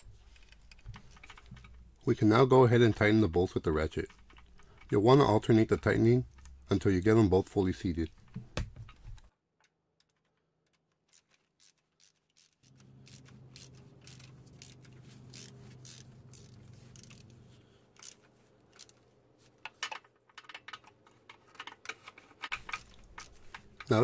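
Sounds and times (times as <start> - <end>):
ratchet pawl clicking: 11.1 - 17.2.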